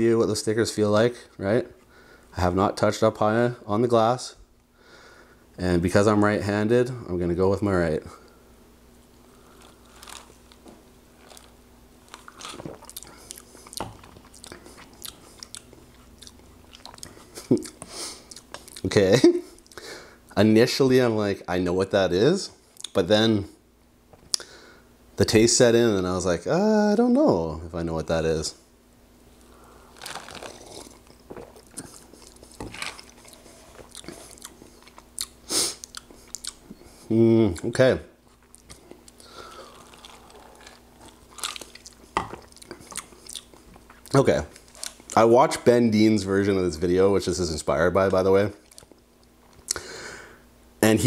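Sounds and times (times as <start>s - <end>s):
person sipping drink: 29.4s - 34.8s, 38.6s - 43.5s
sipping and swallowing: 30.0s - 36.6s.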